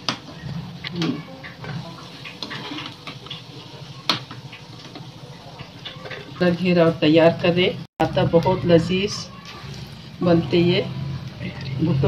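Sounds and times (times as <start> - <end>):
food sizzling in hot oil: 0.0 - 7.9, 8.7 - 12.0.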